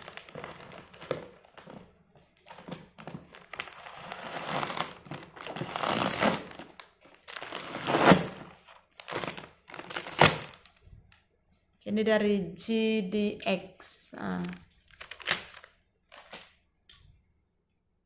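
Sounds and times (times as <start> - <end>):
packing material crinkling: 0.0 - 10.9, 14.4 - 16.6.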